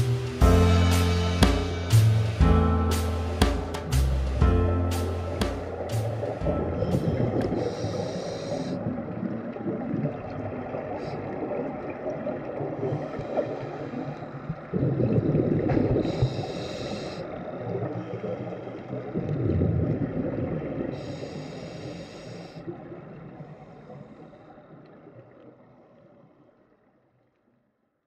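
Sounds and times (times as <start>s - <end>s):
exhaled bubbles rumbling underwater: 5.3s - 27.0s
regulator hiss: 7.0s - 8.8s, 16.1s - 17.3s, 21.0s - 22.6s.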